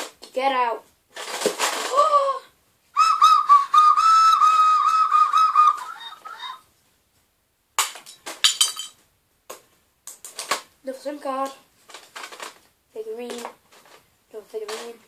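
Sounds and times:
shrill handheld whistle: 0:03.0 - 0:06.6.

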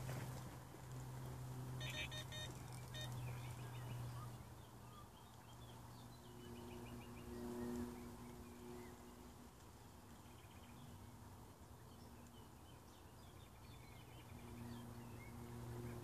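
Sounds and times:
steady low hum: 0:00.0 - 0:16.0
bite alarm electronic beeps: 0:01.8 - 0:03.2
birds singing: 0:01.8 - 0:16.0.

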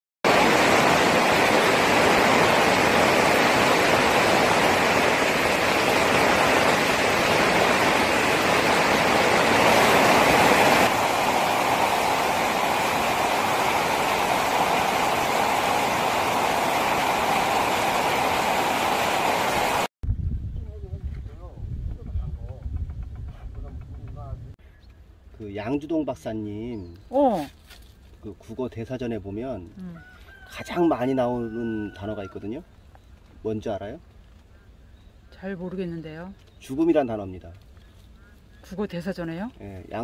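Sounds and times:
heavy rain drumming on plastic roof: 0:00.3 - 0:19.9.

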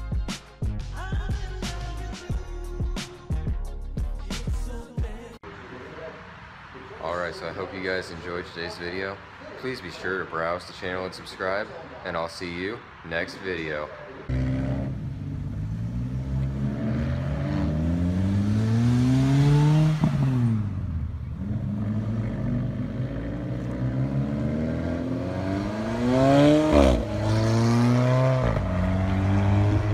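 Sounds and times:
sports car engine accelerating: 0:14.3 - 0:29.9.

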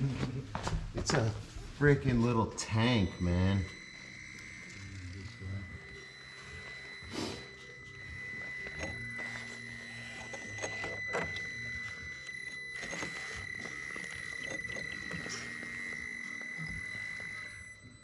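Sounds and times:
small electric motor whining: 0:02.0 - 0:18.0.

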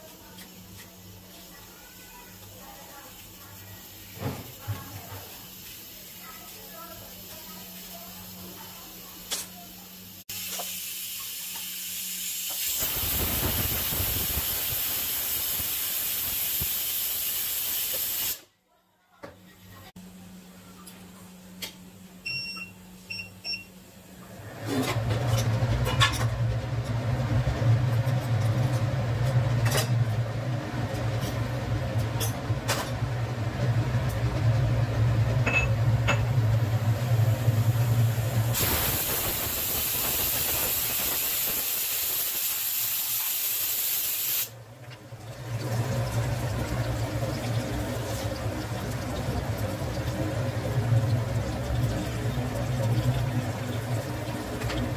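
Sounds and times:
oil sizzling with frying food: 0:00.0 - 0:18.5, 0:23.8 - 0:54.9
short beeps: 0:22.2 - 0:23.7.

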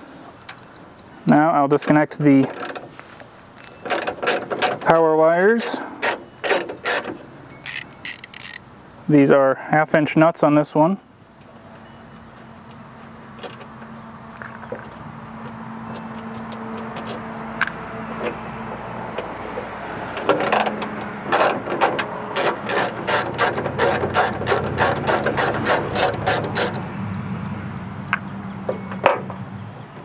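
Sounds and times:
ratchet clicking: 0:06.0 - 0:08.6, 0:20.2 - 0:26.8.

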